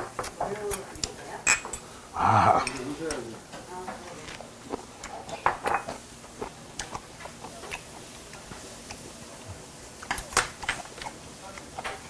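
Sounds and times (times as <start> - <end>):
wet mouth clicks chewing: 6.4 - 9.0.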